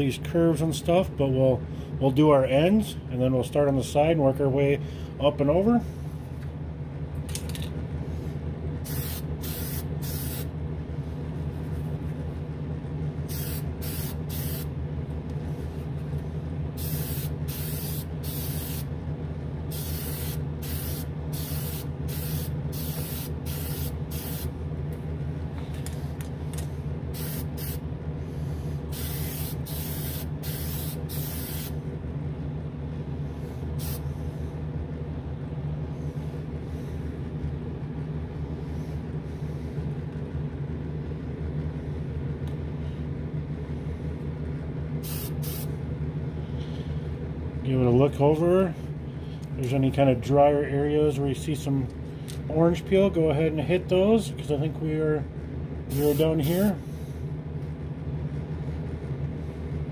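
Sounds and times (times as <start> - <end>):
exhaust fan humming: 0.0 - 59.9
aerosol can spraying bursts: 8.9 - 10.5, 13.3 - 14.7, 16.8 - 18.9, 19.7 - 24.5, 27.2 - 27.8, 29.0 - 31.7, 45.0 - 45.7.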